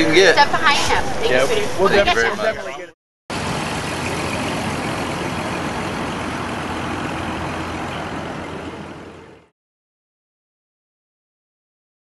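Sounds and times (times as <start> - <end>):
road noise: 0.0 - 9.6
truck engine: 3.3 - 9.5.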